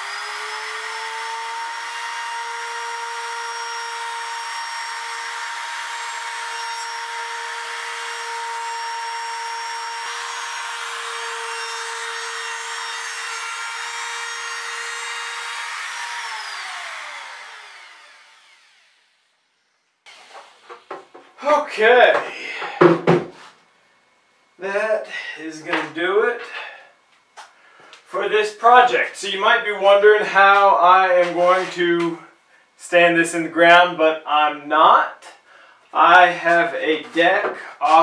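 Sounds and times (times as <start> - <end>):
router motor whine: 0.0 - 21.2
router bit cutting wood: 0.0 - 21.6, 36.0 - 38.0.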